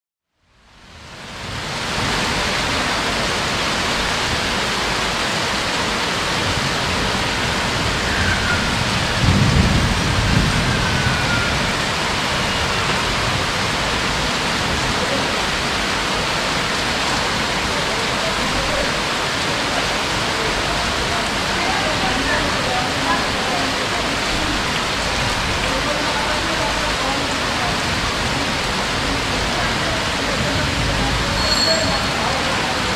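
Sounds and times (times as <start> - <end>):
heavy rain: 0.4 - 32.9
thunder rumbling: 6.2 - 17.7, 20.1 - 32.9.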